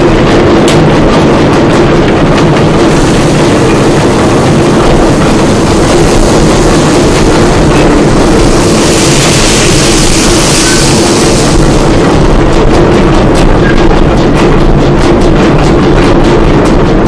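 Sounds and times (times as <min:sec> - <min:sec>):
pipe machine mechanical din: 0:00.0 - 0:17.0
higher hiss: 0:02.6 - 0:12.7.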